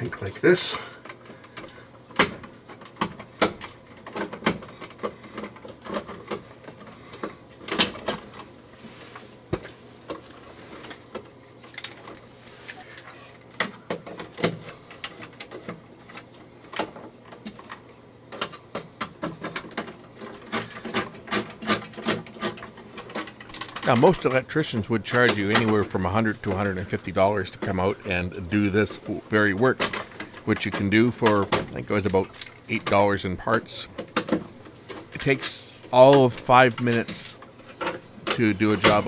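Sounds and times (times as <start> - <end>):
metal electrical parts clicking: 13.0 - 39.0.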